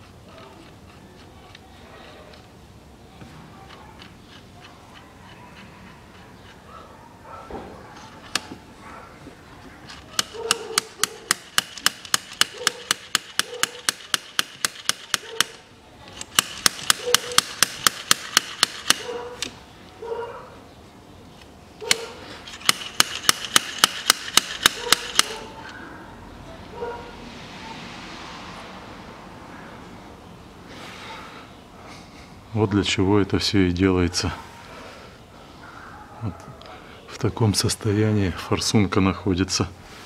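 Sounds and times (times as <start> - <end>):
slide hammer metallic clacks: 16.2 - 19.5, 21.9 - 25.4.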